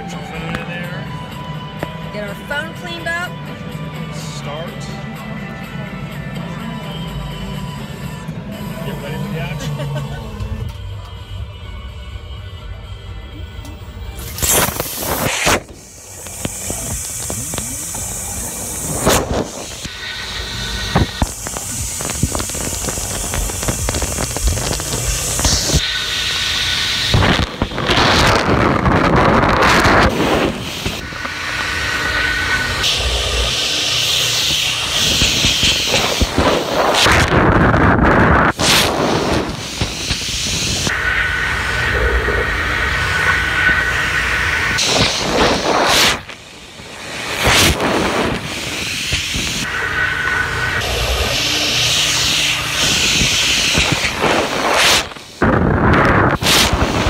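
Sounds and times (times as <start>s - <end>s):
faint high whine: 0.0s - 57.0s
water spraying in machine: 14.2s - 37.3s, 47.0s - 55.4s.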